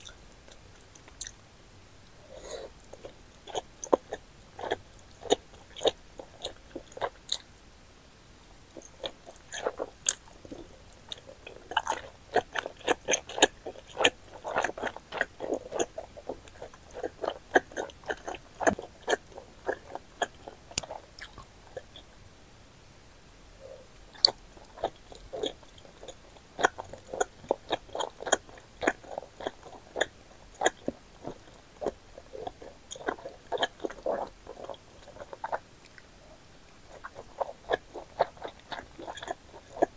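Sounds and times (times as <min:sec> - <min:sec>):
person chewing noodles: 0:00.0 - 0:01.4, 0:02.3 - 0:07.4, 0:08.7 - 0:22.1, 0:23.6 - 0:39.9
mouth clicks and smacks: 0:11.1 - 0:22.0.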